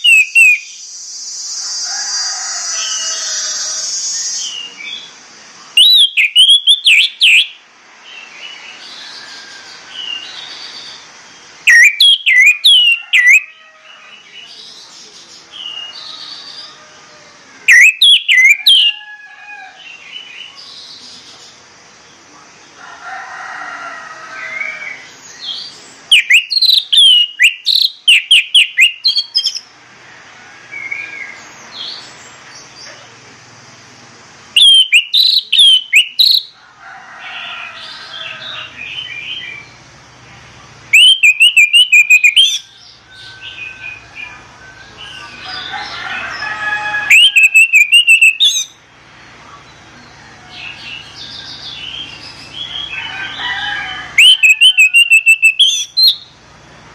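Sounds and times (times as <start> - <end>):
thrush whistled song: 0.0 - 1.6, 5.8 - 7.6, 11.7 - 13.5, 17.7 - 18.9, 26.1 - 29.7, 34.6 - 36.6, 40.9 - 44.1, 47.1 - 48.8, 54.2 - 56.4
other birds chirping: 0.0 - 22.8, 23.9 - 29.8, 30.7 - 36.6, 37.2 - 56.9.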